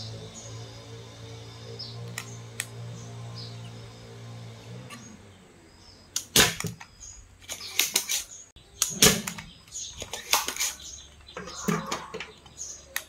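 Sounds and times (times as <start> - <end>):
desoldering pump snapping: 2.1 - 2.8, 6.1 - 13.0.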